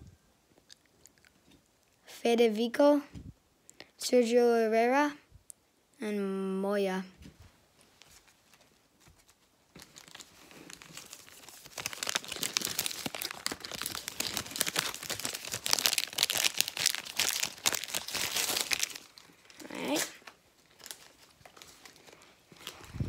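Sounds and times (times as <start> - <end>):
plastic wrapper crinkling and tearing: 7.8 - 23.0.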